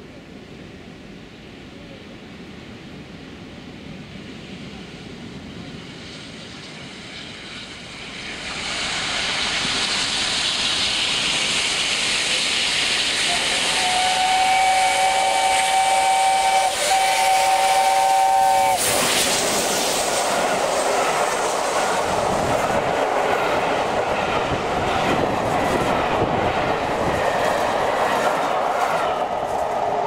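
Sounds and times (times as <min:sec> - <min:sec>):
locomotive rushing past: 0:04.5 - 0:30.0
train wheels rumbling and clicking: 0:05.0 - 0:30.0
steam whistle chord: 0:13.3 - 0:19.1.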